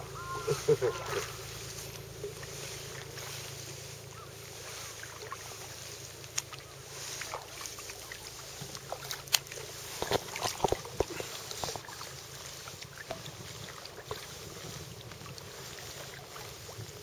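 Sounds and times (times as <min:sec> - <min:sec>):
steady hiss: 0:00.0 - 0:09.0
paddle strokes in water: 0:00.0 - 0:17.0
water splashes: 0:00.0 - 0:17.0.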